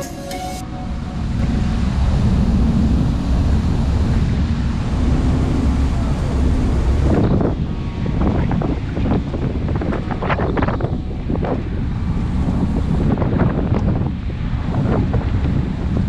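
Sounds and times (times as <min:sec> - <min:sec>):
wind buffeting microphone: 0:01.2 - 0:16.0.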